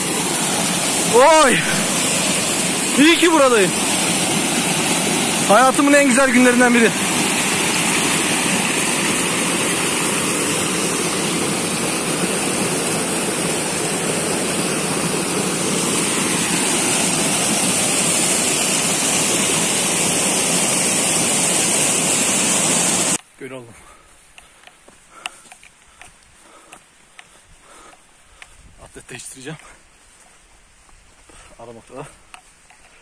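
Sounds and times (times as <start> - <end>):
stream rushing over rocks: 0.0 - 23.2.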